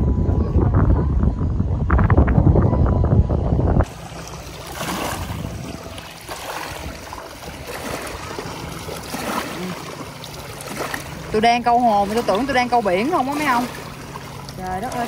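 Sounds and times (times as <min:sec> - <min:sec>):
small waves lapping and splashing: 0:03.8 - 0:15.0.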